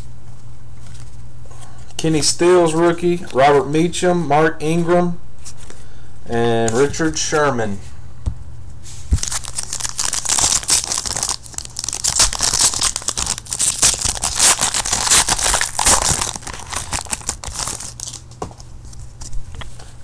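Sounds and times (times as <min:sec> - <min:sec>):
foil wrapper crackling: 0:09.2 - 0:18.5.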